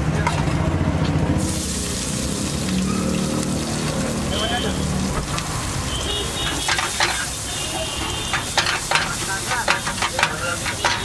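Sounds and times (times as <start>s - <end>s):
eggs sizzling in a wok: 1.4s - 11.0s
metal spatula scraping pan: 6.3s - 11.0s.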